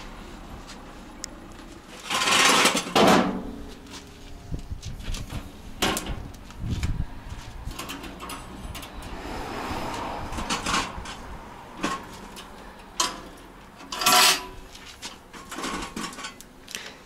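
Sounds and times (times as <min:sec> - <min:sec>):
metal grill parts clanking: 0:02.0 - 0:03.7, 0:05.2 - 0:06.3, 0:07.7 - 0:09.2, 0:10.3 - 0:16.5
loud rushing scraping noise: 0:06.7 - 0:12.3.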